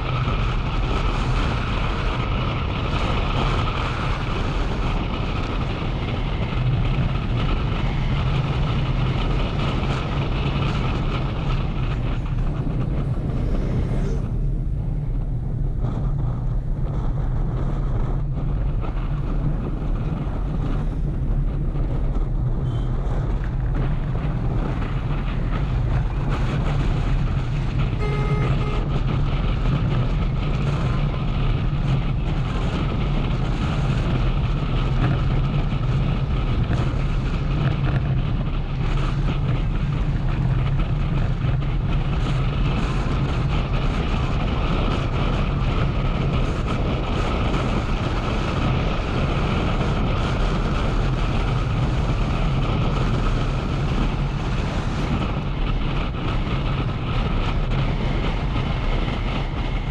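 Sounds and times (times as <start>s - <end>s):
motorcycle engine running: 0.0s - 59.9s
road and wind noise: 0.0s - 59.9s
short horn beep: 28.0s - 28.9s.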